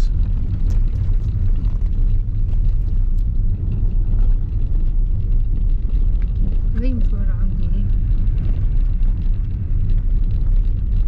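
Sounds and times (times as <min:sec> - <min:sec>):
car rumbling on rough road: 0:00.0 - 0:11.0.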